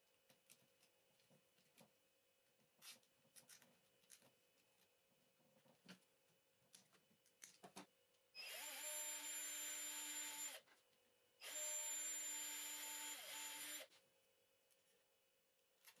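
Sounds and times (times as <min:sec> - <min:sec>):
electric drill whining: 0:08.4 - 0:10.6, 0:11.4 - 0:13.9.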